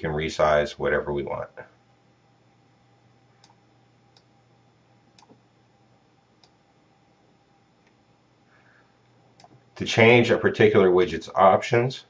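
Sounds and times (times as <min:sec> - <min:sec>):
faint room hum: 0:00.0 - 0:12.0
computer mouse clicks: 0:03.4 - 0:04.3, 0:05.2 - 0:05.4, 0:09.4 - 0:09.6.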